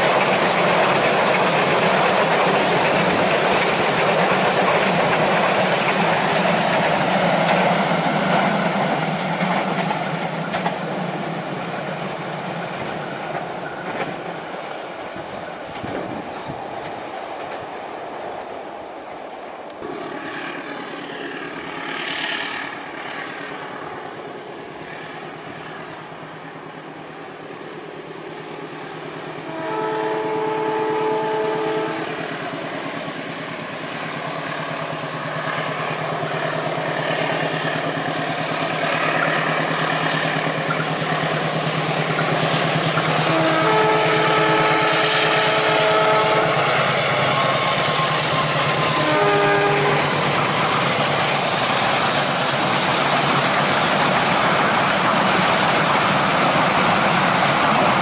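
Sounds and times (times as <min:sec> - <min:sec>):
diesel locomotive engine hum: 0:00.0 - 0:58.0
train rumble: 0:00.0 - 0:58.0
train horn blasts: 0:29.3 - 0:32.4, 0:43.0 - 0:50.2.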